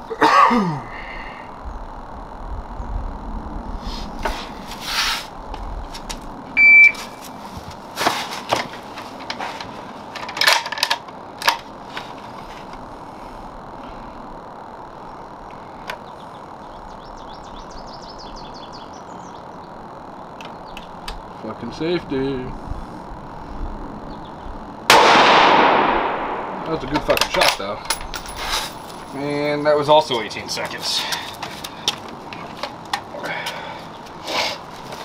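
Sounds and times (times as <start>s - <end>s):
shot timer beep: 6.6s - 7.0s
knocks and rustles: 7.5s - 12.8s.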